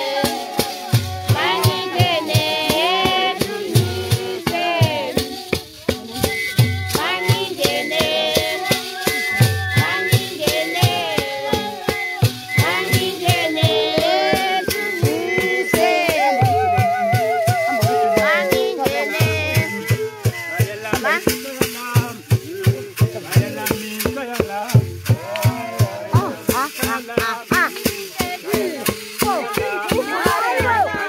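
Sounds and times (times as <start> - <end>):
wavering held voice: 0.0 - 21.2
group singing: 0.0 - 31.0
low drum beat: 0.0 - 31.0
rattle-like percussion strokes: 0.0 - 31.0.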